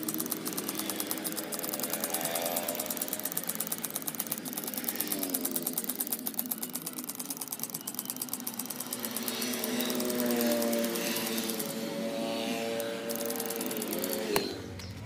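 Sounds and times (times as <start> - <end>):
small power tool rattling: 0.0 - 15.0.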